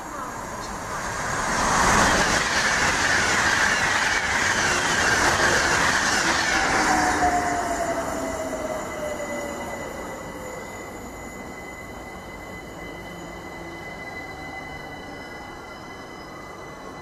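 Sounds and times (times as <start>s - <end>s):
train passing at speed: 0.0s - 17.0s
faint high brake squeal: 3.8s - 17.0s.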